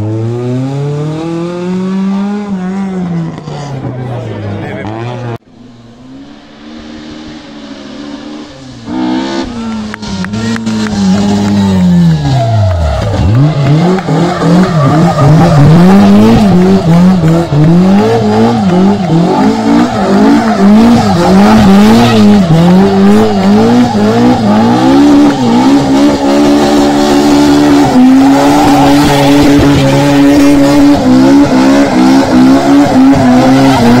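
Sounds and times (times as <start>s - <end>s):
car engine revving: 0.0s - 34.0s
tyres squealing on asphalt: 8.0s - 34.0s.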